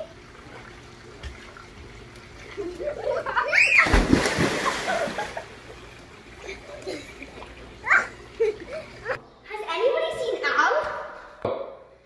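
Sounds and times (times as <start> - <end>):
water churning: 0.0 - 9.2
heavy splash into pool: 3.5 - 5.4.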